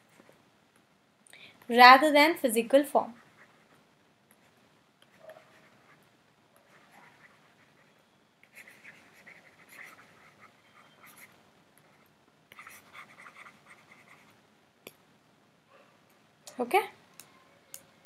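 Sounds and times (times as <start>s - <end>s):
stylus scratching on a tablet: 3.0s - 14.4s.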